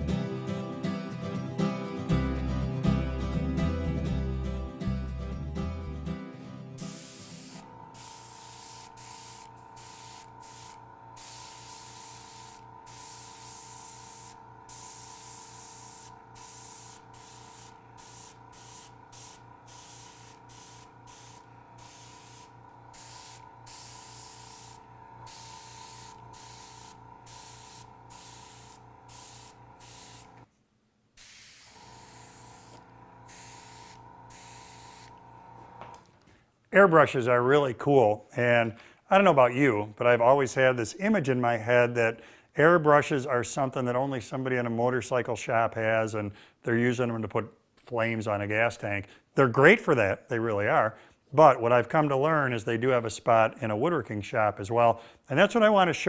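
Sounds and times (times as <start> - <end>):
small compressor humming: 4.9 - 30.5, 31.1 - 36.3
airbrush air hiss: 6.8 - 30.5, 31.2 - 36.0.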